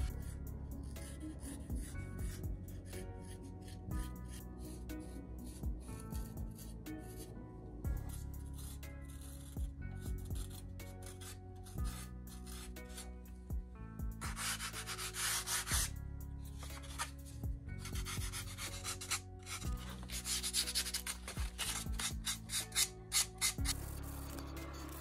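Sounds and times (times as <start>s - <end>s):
background music: 0.0s - 25.0s
sanding block rubbing wood: 14.3s - 15.9s.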